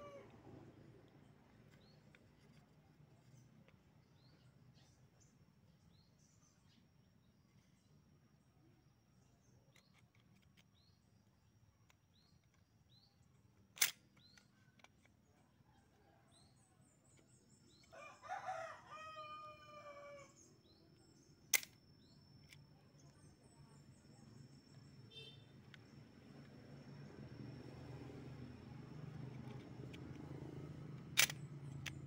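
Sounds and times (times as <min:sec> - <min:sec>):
rooster crowing: 0:00.0 - 0:00.3, 0:17.9 - 0:20.5
small birds chirping: 0:09.1 - 0:18.4, 0:19.1 - 0:32.0
crossbow trigger clicks: 0:13.8 - 0:14.9, 0:21.5 - 0:21.8, 0:31.0 - 0:32.0.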